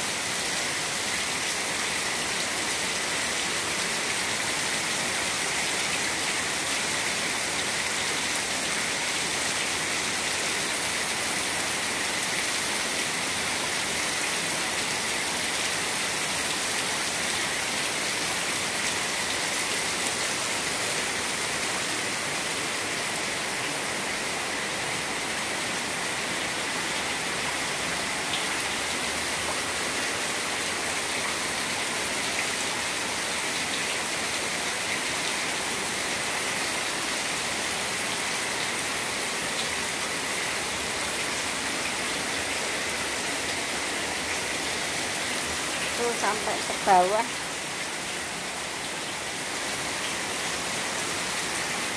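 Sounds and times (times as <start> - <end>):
heavy rain on standing water: 0.0 - 51.9.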